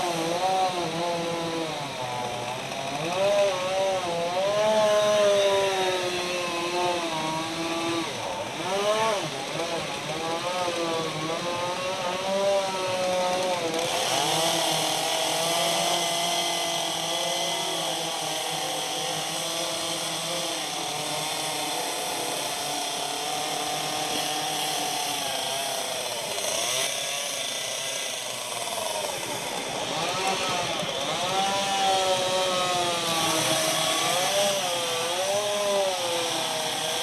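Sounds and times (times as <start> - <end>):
chainsaw cutting wood: 0.0 - 37.0.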